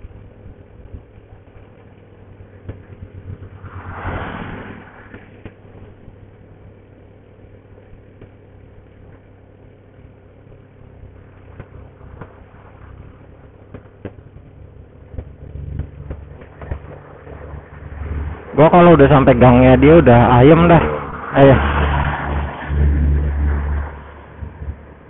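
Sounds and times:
motorcycle engine running: 0.0 - 3.9, 4.8 - 21.2, 22.7 - 25.0
brief rush of noise: 3.6 - 5.4.

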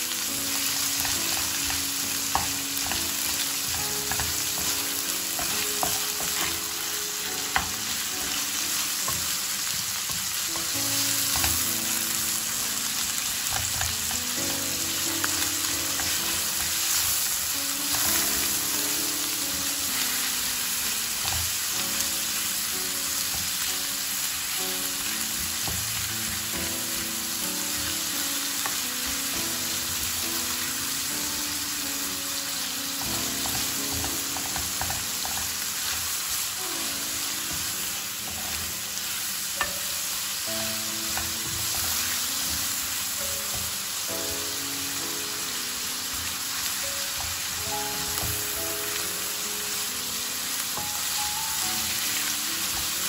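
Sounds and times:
meat and onion sizzling: 0.0 - 53.0
spatula scraping and tapping pan: 1.0 - 6.6, 33.0 - 36.1.

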